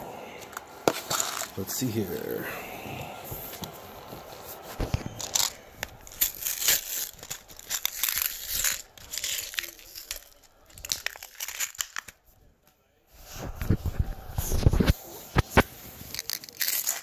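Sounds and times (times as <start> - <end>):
packaging being torn and crinkled: 0.5 - 1.6, 4.8 - 12.2, 16.0 - 17.0.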